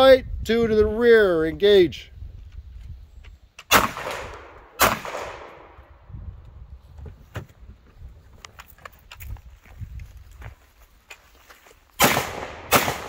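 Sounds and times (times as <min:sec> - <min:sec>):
handgun shots echoing: 0:03.7 - 0:05.7, 0:12.0 - 0:13.0.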